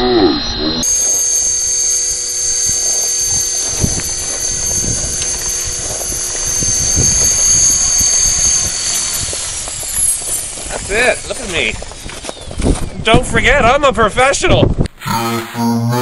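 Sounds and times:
low rushing noise: 0.4 - 12.1
rc helicopter motor and rotor whine: 0.5 - 13.0.

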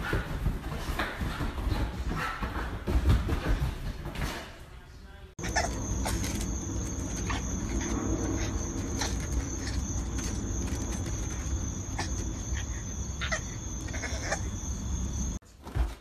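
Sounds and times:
high insect drone: 5.4 - 15.4.

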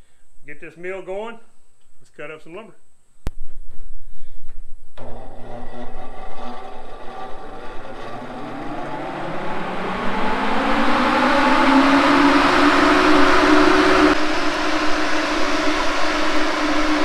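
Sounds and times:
fan motor hum: 4.9 - 17.0.

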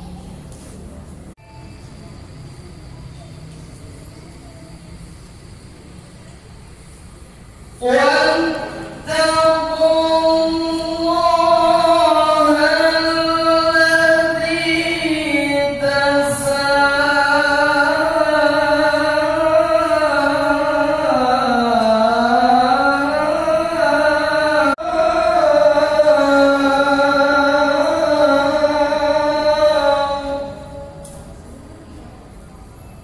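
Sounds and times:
melodic recitation over loudspeaker: 7.6 - 33.0.

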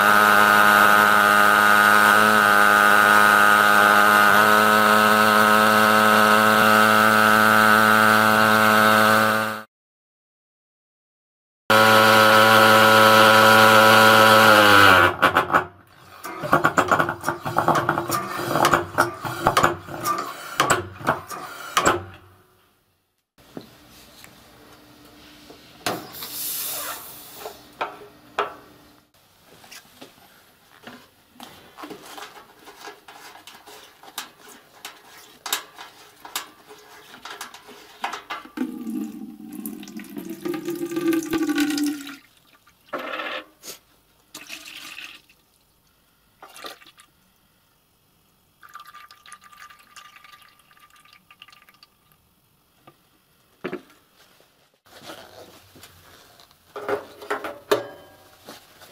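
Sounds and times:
hiss of escaping air: 26.0 - 27.7
liquid pouring into plastic bucket: 38.5 - 42.9, 44.3 - 45.6, 46.4 - 47.2, 48.6 - 52.2.

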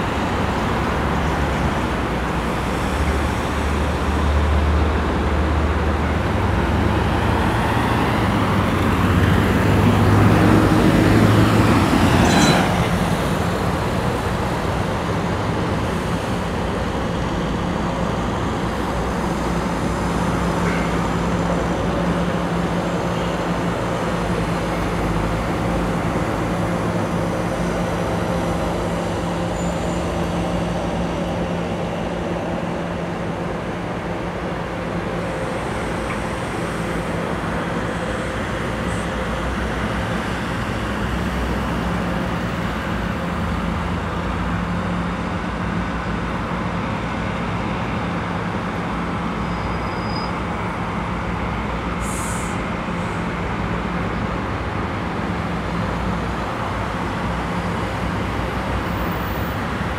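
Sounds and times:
city traffic noise: 0.0 - 59.9
heavy vehicle engine: 0.0 - 59.9
high-pitched squeal: 12.1 - 13.4.

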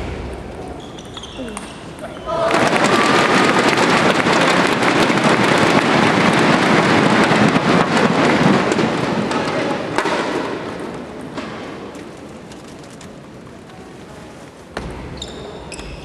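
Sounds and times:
crowd cheering: 0.0 - 10.0
thundersticks clattering: 0.0 - 13.7.

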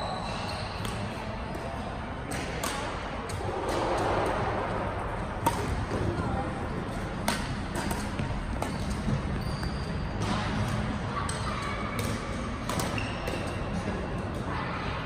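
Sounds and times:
shoes squeaking on court: 0.0 - 1.8, 7.6 - 10.8, 12.8 - 13.8
rackets striking shuttlecock: 0.4 - 4.4, 5.4 - 6.1, 7.1 - 13.8.

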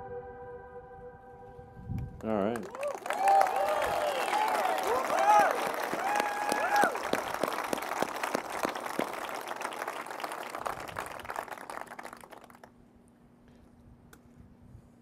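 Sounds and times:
crowd applauding: 2.2 - 12.7.

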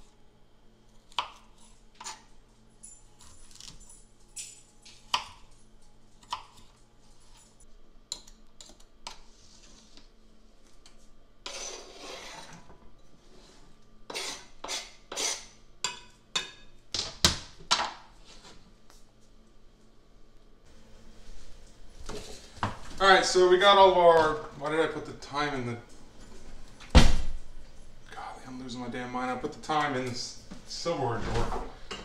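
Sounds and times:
knife scraping board: 1.1 - 2.3, 11.4 - 15.6.

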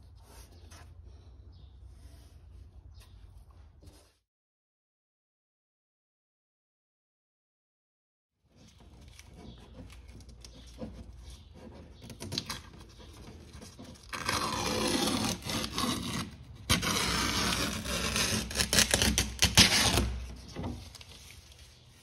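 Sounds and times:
tape peeling off: 8.7 - 22.0.

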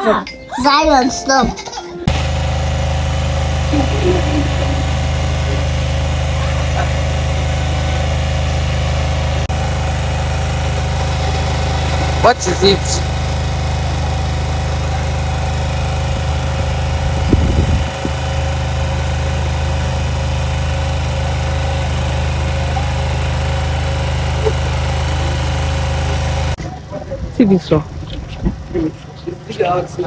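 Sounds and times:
generator engine humming: 2.0 - 30.0.

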